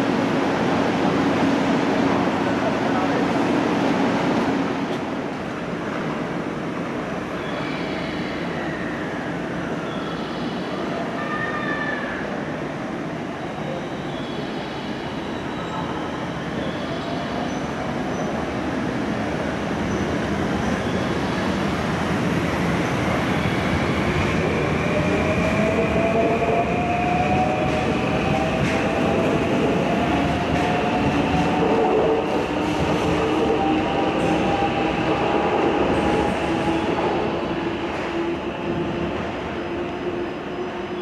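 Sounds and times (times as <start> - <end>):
train wheel and running noise: 13.6 - 41.0.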